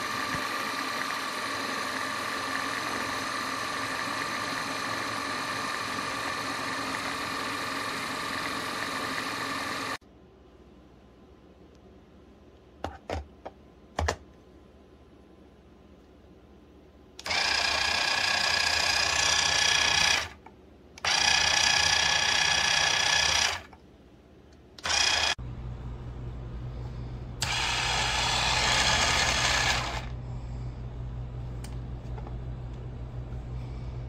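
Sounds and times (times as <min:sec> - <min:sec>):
electric chopper motor whirring: 0:00.0 - 0:10.0, 0:17.2 - 0:20.4, 0:21.0 - 0:23.7, 0:24.8 - 0:25.4, 0:27.4 - 0:30.2
steady low hum: 0:23.8 - 0:34.0.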